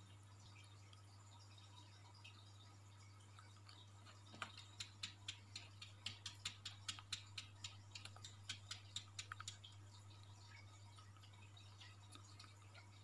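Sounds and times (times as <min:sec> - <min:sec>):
cat paws tapping on glass: 0:04.2 - 0:09.8.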